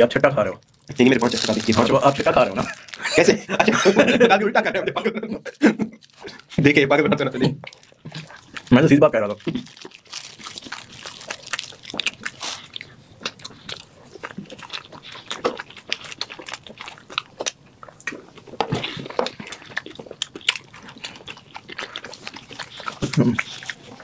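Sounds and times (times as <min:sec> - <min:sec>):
chewing and biting food: 0:07.6 - 0:24.0.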